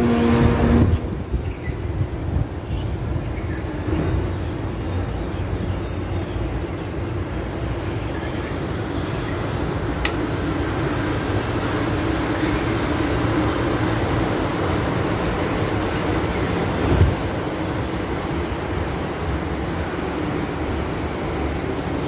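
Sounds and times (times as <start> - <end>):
sharp click: 10.0 - 10.2.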